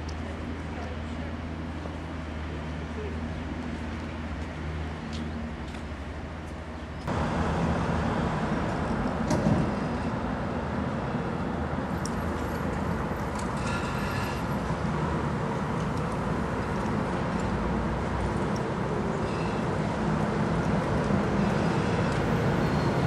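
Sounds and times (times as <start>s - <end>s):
vehicle rumble from inside: 5.4s - 23.0s
faint high squeal: 21.4s - 23.0s.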